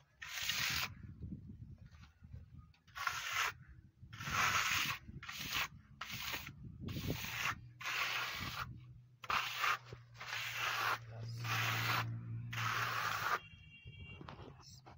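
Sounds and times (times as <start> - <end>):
trowel scraping a rough wall: 0.0 - 1.2, 2.8 - 13.4.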